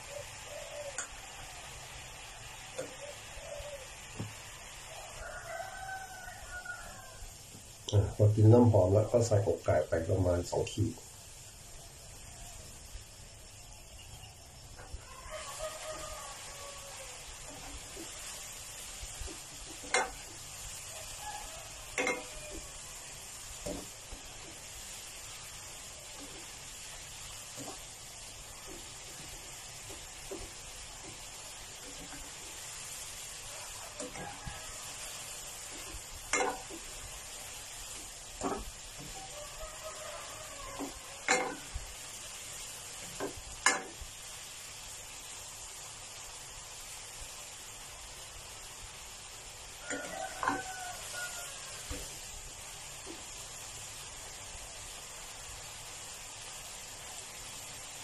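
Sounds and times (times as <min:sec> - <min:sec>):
chicken sizzling in a pan: 0:00.0 - 0:58.0
spatula scraping a pan: 0:17.4 - 0:21.2, 0:21.9 - 0:22.8, 0:26.2 - 0:39.9, 0:40.6 - 0:41.7.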